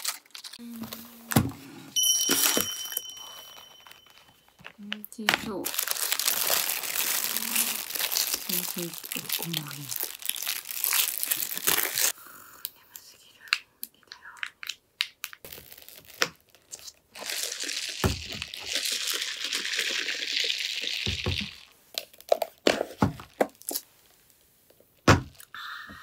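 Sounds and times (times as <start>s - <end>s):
paper wrapper crinkling: 0.0s - 1.4s, 2.3s - 12.1s, 14.6s - 22.6s.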